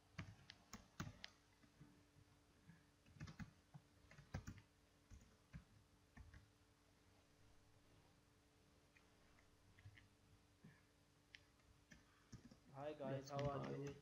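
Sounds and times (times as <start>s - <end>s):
computer keyboard typing: 0.2s - 1.4s, 3.1s - 6.5s, 11.9s - 12.6s.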